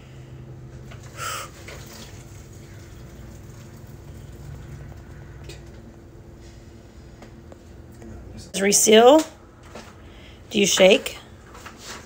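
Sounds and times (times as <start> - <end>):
hot water pouring into pouch: 1.4 - 5.0.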